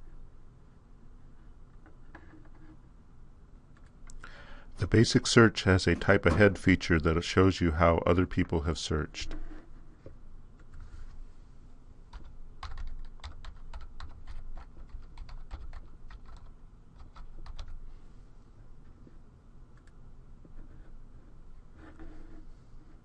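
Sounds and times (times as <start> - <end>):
typing on computer keyboard: 12.1 - 17.8.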